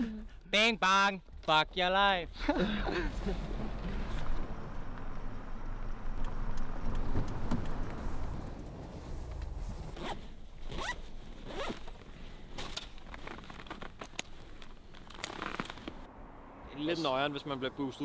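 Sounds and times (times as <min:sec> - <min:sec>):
low rumble: 0:02.3 - 0:10.4
zipper pulled: 0:09.8 - 0:12.0, 0:15.0 - 0:16.1.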